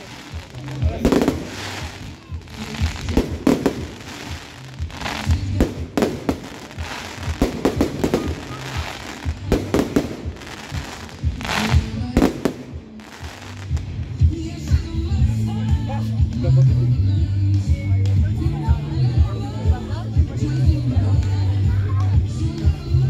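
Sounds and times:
firework crackling hiss: 0:00.0 - 0:14.2.

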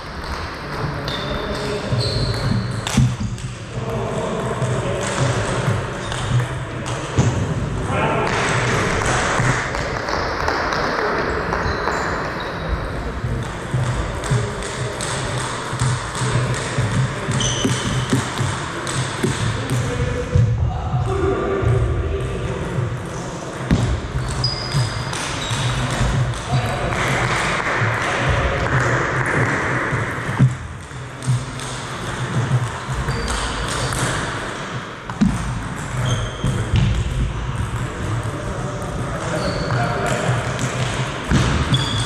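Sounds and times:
voices in reverberant hall: 0:00.0 - 0:42.0
ball bouncing on table: 0:13.4 - 0:19.9.

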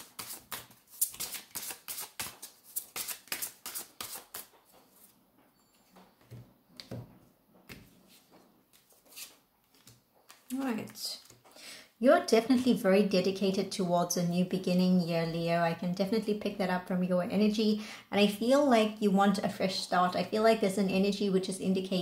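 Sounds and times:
cards being shuffled: 0:00.0 - 0:04.6, 0:07.7 - 0:11.5.

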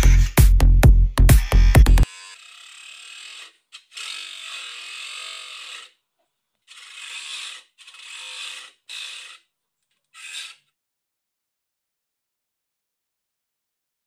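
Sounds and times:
grinding wheel motor running: 0:01.3 - 0:05.9, 0:06.7 - 0:09.4.

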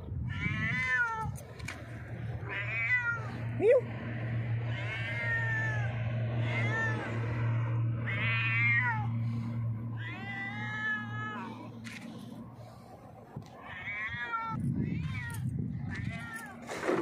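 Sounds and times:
steady low hum: 0:00.0 - 0:16.8
cat meowing loudly: 0:00.2 - 0:01.4, 0:02.4 - 0:03.4, 0:04.6 - 0:07.4, 0:08.0 - 0:09.1, 0:10.0 - 0:11.5, 0:13.7 - 0:16.7.

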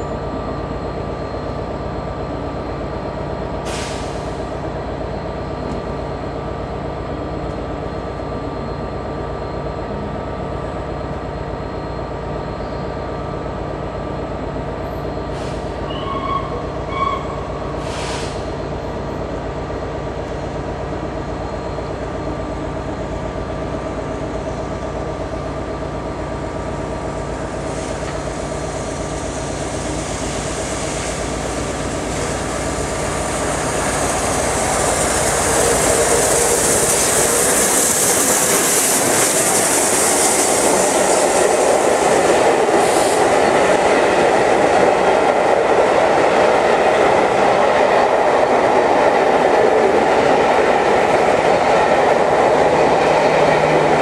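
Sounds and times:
steam locomotive passing: 0:00.0 - 0:54.0
train coaches clickety-clack: 0:02.3 - 0:09.2, 0:12.2 - 0:54.0
high steam hiss: 0:03.6 - 0:04.7, 0:17.7 - 0:18.6, 0:27.4 - 0:46.3.

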